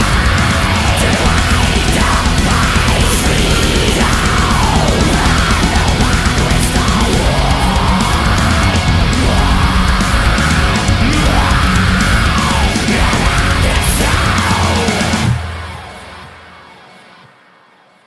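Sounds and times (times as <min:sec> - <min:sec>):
black metal music: 0:00.0 - 0:17.3.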